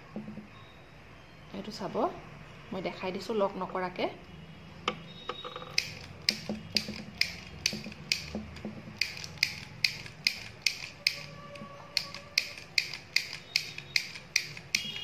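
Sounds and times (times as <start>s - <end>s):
mini sewing machine clicking: 9.0s - 11.3s, 12.0s - 15.0s.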